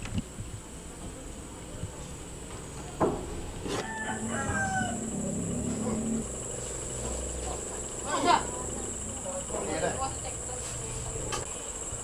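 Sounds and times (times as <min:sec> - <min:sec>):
insect chirring: 0:03.9 - 0:12.0.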